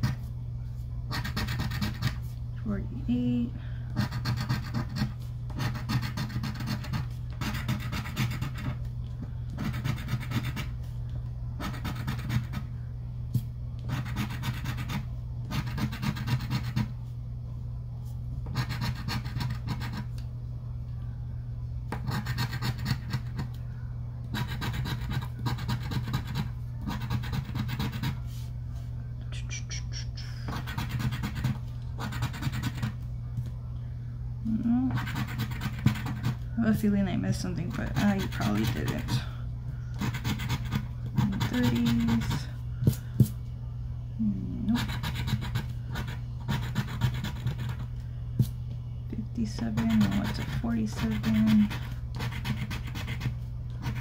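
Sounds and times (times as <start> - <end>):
scratching lottery ticket: 1.1 - 2.3, 4.0 - 8.9, 9.5 - 10.9, 11.6 - 12.7, 13.8 - 17.0, 18.4 - 20.2, 22.0 - 23.6, 24.3 - 28.5, 30.4 - 33.0, 34.9 - 42.6, 44.7 - 47.9, 49.4 - 54.0.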